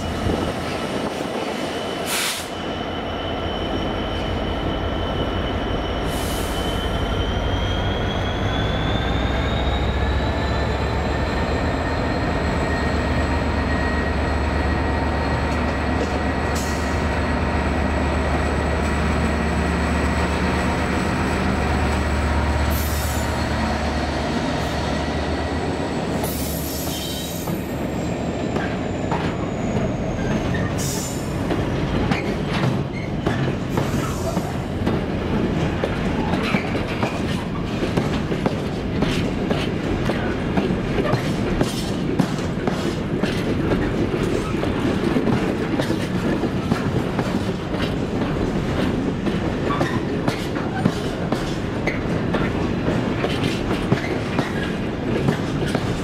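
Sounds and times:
train wagons rolling and clanking: 0.0 - 56.0.

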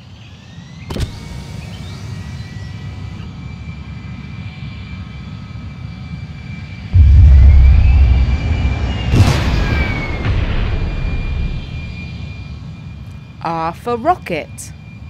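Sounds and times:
rising whine: 7.0 - 12.2
rocket engine rumble: 7.0 - 12.3
rocket blast-off rumble: 7.0 - 12.4.

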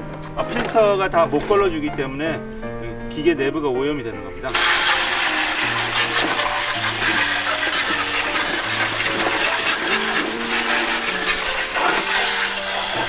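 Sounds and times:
soft background music: 0.0 - 13.0
water spray hissing and splashing: 4.5 - 13.0.

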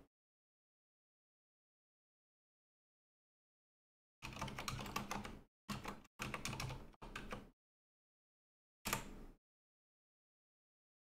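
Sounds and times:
computer keyboard typing: 4.2 - 7.5.

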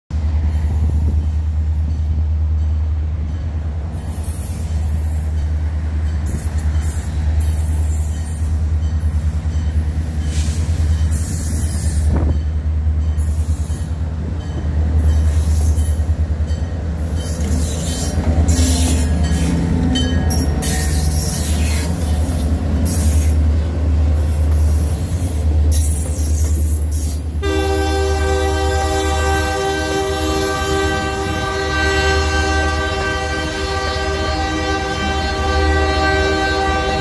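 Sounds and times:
diesel locomotive rumbling: 0.1 - 37.0
train wheels squealing: 6.2 - 12.4, 13.2 - 16.1, 17.0 - 23.4, 24.2 - 27.3.

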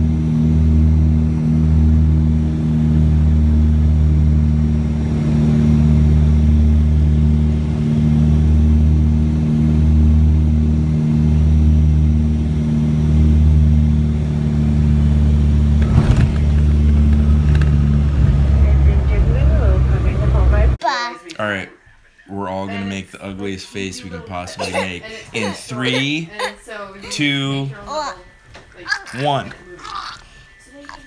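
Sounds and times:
aircraft propellers droning in cabin: 0.0 - 20.8
brief rattle: 15.8 - 18.5.

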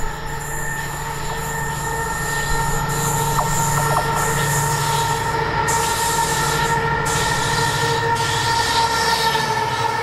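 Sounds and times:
diesel locomotive engine drone: 0.0 - 10.0.

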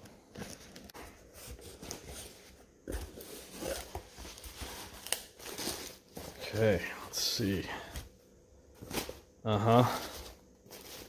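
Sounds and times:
cardboard scraping and rustling: 10.0 - 11.0.

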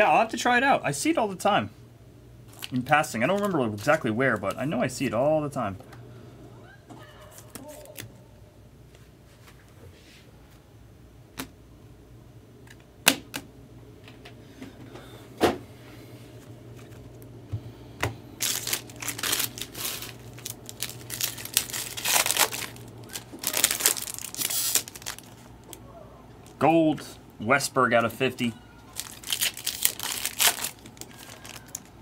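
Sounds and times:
cards and wrapper rustling: 2.5 - 5.1, 18.4 - 25.8, 28.9 - 32.0.

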